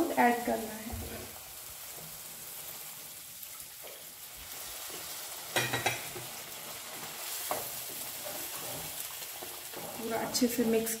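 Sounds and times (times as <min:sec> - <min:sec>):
milk sizzling and bubbling in a pan: 0:00.0 - 0:11.0
wooden spatula stirring: 0:05.9 - 0:11.0.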